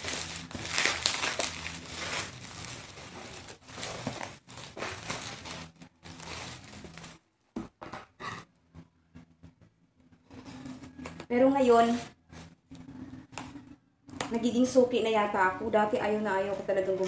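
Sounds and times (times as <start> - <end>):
bubble wrap crinkling: 0.0 - 7.2.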